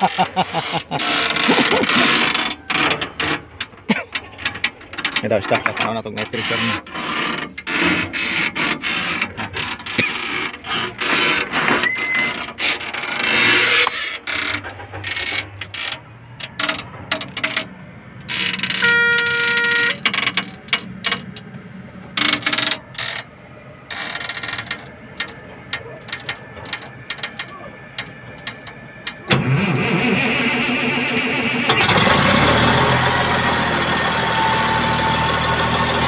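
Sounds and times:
metallic clicking and clattering: 0.0s - 23.3s, 23.9s - 29.3s.

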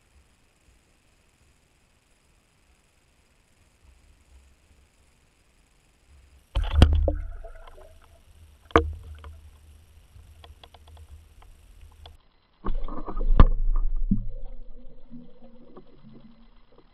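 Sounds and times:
muffled underwater churning: 6.6s - 16.9s
turbulent underwater rush: 12.6s - 16.9s.

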